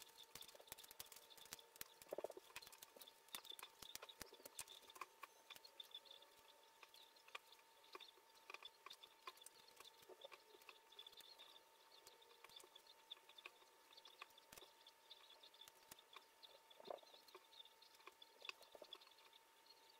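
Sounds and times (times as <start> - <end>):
foam puzzle pieces clicking: 0.0 - 5.7
faint steady hum: 0.0 - 19.9.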